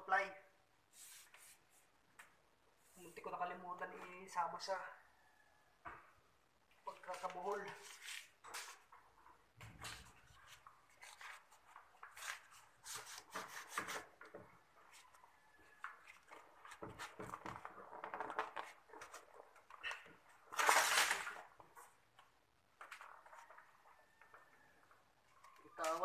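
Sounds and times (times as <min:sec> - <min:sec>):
pipes and insulation rustling: 0:06.6 - 0:26.0.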